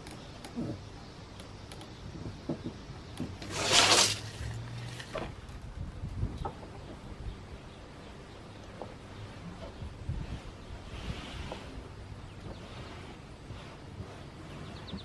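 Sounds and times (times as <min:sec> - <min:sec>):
rushing hiss: 0:03.4 - 0:05.0.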